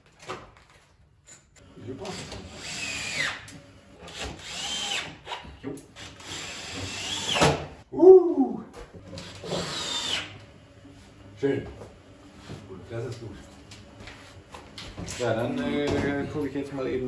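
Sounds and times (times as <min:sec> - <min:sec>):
power drill driving screws: 0:01.8 - 0:07.7, 0:09.1 - 0:10.4.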